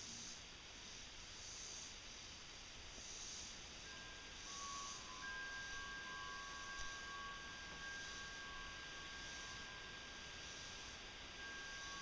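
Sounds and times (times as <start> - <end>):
steady outdoor hiss: 0.0 - 12.0
thin high tone: 3.9 - 12.0.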